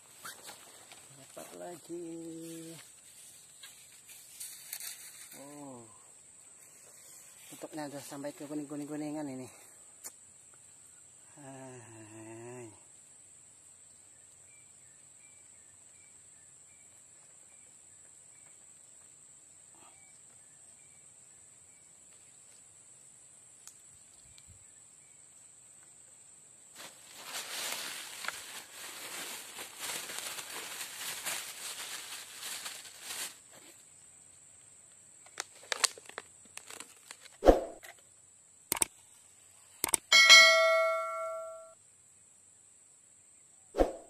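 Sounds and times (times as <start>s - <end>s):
high insect drone: 0.2s - 36.8s
rustling handling noise: 26.8s - 33.8s, 35.4s - 37.4s
clicks: 38.7s - 38.9s, 39.8s - 40.1s
ringing bell ding: 40.1s - 41.8s.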